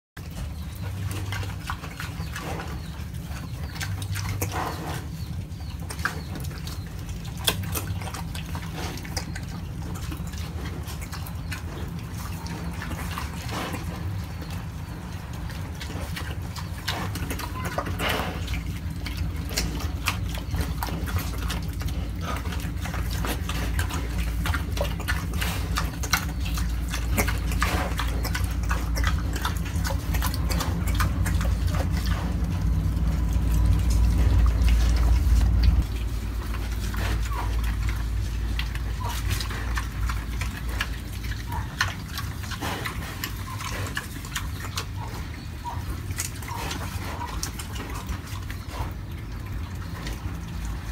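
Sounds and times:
pig chewing vegetables: 0.2s - 50.9s
low rumble: 6.9s - 44.4s.

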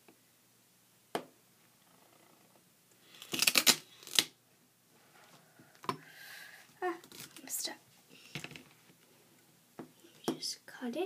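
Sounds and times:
duct tape crinkling: 3.0s - 4.4s, 6.9s - 7.6s.

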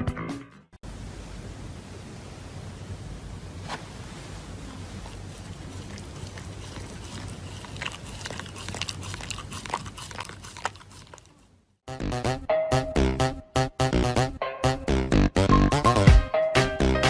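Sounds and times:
dog chewing crinkling paper: 4.7s - 11.5s.

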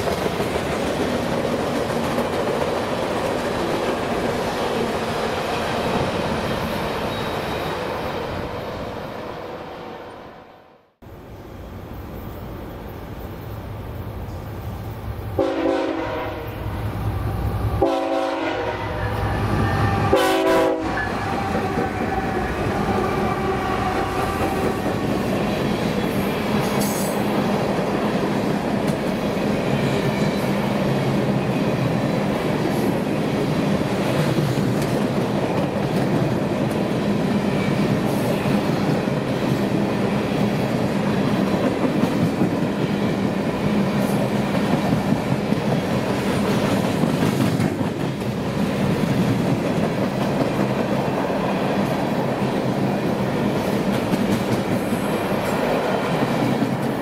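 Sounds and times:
train wheels rumbling on rails: 0.0s - 9.1s, 13.0s - 57.0s
train air horn blasts: 15.4s - 16.8s, 17.8s - 21.6s.

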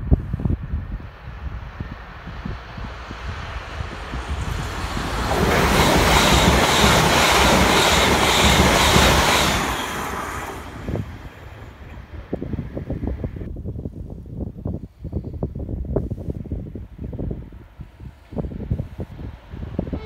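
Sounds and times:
wind buffeting microphone: 0.0s - 20.0s
train wheels rushing on rail: 0.8s - 13.5s.

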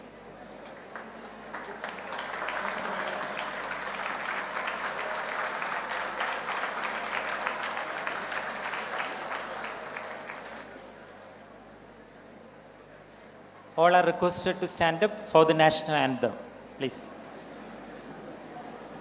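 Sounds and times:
audience applauding: 0.6s - 10.8s.

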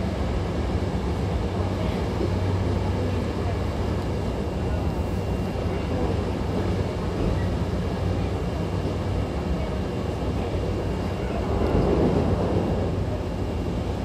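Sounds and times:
train wheels rumbling: 10.7s - 14.0s.

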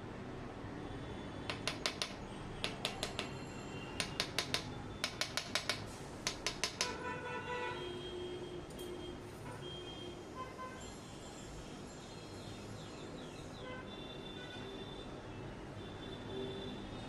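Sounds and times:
sharp metallic clicks: 1.5s - 3.4s, 4.0s - 7.0s.

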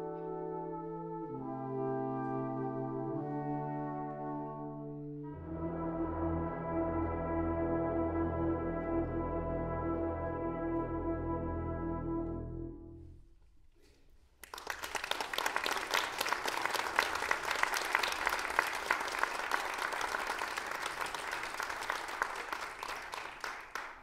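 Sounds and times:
brass ensemble chord: 0.0s - 13.1s
audience applause: 14.4s - 24.0s.

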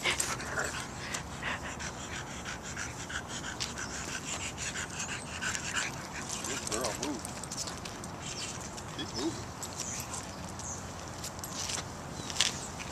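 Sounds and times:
dog panting: 0.0s - 7.5s.

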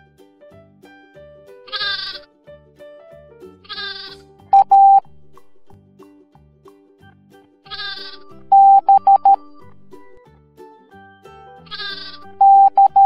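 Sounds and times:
light children's music: 0.0s - 13.0s
sheep bleating: 3.7s - 4.1s, 7.7s - 8.2s
morse code beeps: 4.5s - 5.1s, 7.8s - 9.8s, 11.8s - 13.0s.

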